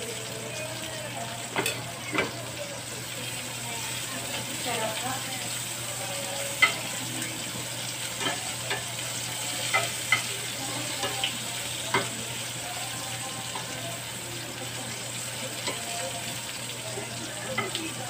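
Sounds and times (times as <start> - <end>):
onion rings sizzling in a skillet: 0.0 - 18.0
metal tongs clicking on pan: 6.6 - 6.8, 8.2 - 8.9, 9.6 - 10.3.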